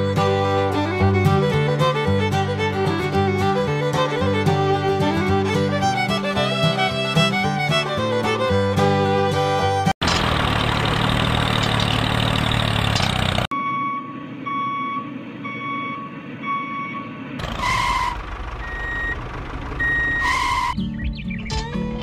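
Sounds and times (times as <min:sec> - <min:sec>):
rushing mechanical noise: 0:10.0 - 0:13.5
truck reversing alarm beeping: 0:13.5 - 0:20.8.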